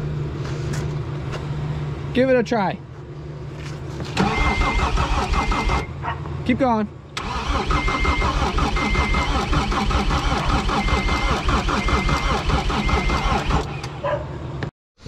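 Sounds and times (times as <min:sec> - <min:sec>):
diesel engine cranking: 0:03.9 - 0:06.0, 0:07.1 - 0:14.2.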